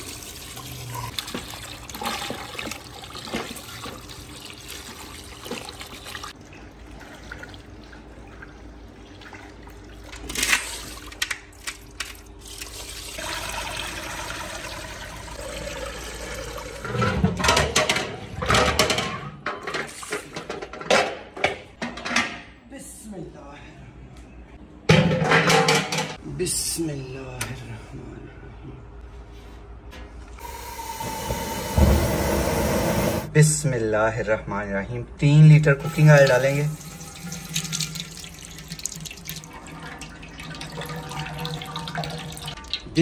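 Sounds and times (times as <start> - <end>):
water splashing in a metal tub: 0.0 - 11.1, 35.8 - 43.0.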